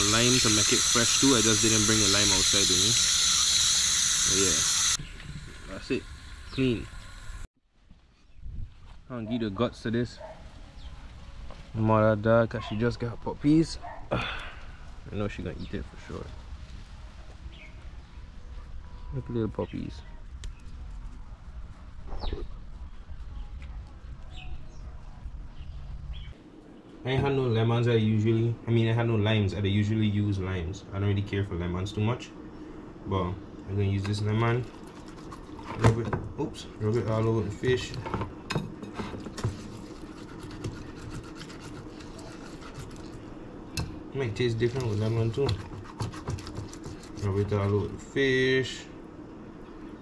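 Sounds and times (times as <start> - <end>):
lemon scrubbing fish skin: 34.5 - 35.8, 39.2 - 43.2, 44.6 - 47.9.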